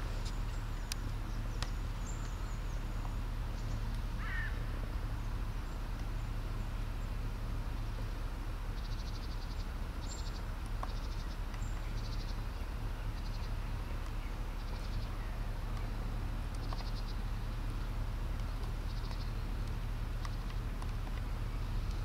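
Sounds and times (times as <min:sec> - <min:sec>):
low rumble: 0:00.0 - 0:22.0
trills of ticking chirps: 0:08.7 - 0:22.0.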